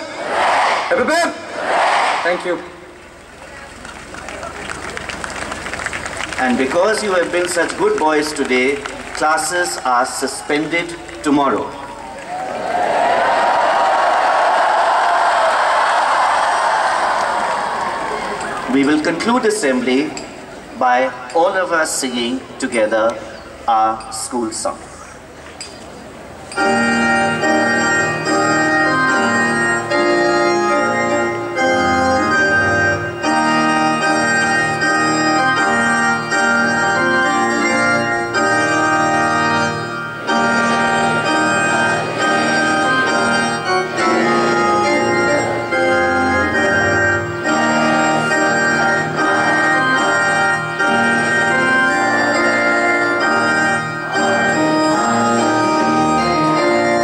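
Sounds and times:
electronic organ chords: 0:26.4 - 0:57.0.

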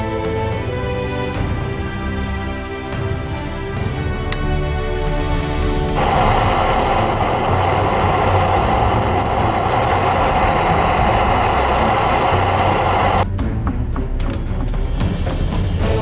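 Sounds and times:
background music: 0:00.0 - 0:16.0
blowtorch flame hissing: 0:04.6 - 0:13.3.

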